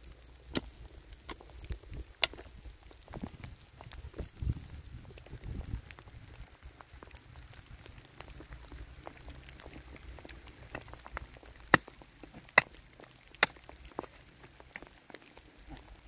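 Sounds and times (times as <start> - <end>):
faint clicks and rustles: 0.0 - 16.0
digging tool knocking stony soil: 0.4 - 1.6, 2.2 - 2.6, 11.7 - 14.9.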